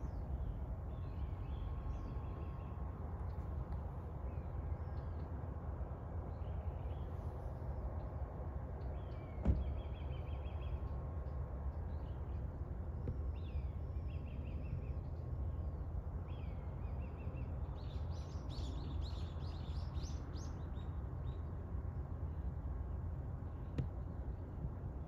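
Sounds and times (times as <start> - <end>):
small birds chirping: 13.1 - 21.5.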